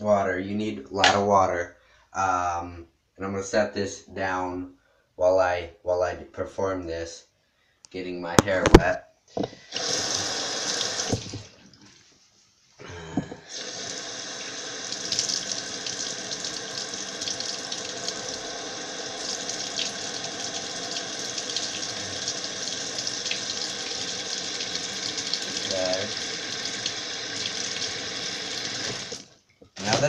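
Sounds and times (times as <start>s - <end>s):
sink tap running: 9.6s - 11.6s, 13.5s - 30.0s.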